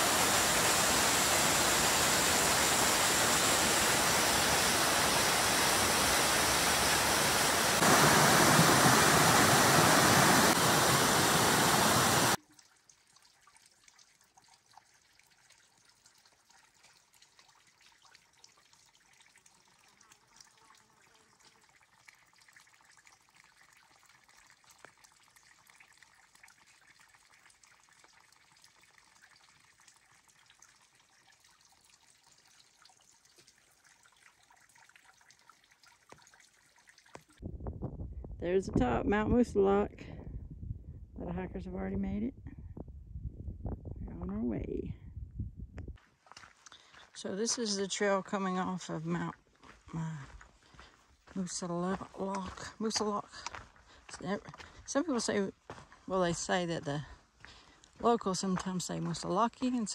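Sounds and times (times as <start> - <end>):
waterfall rushing over rock: 0.0 - 12.4.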